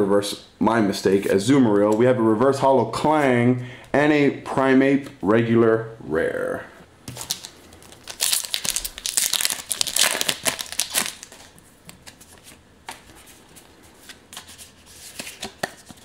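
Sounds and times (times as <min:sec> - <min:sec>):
foil wrapper crinkling and tearing: 0:07.1 - 0:11.6
cards rustling: 0:07.1 - 0:16.0.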